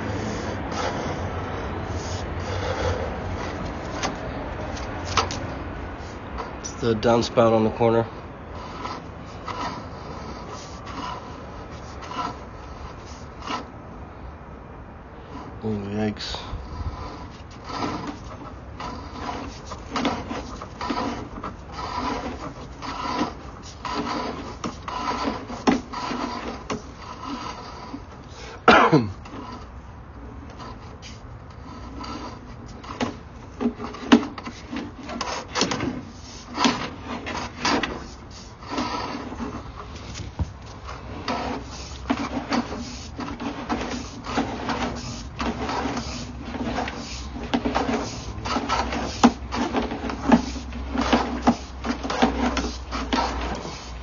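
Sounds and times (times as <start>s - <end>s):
push rod and reel rattling: 16.6s - 28.5s, 30.4s - 54.0s.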